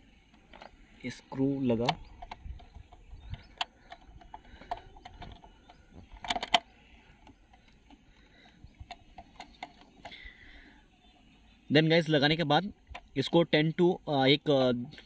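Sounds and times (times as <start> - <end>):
hex key metal clicks: 1.8 - 10.2.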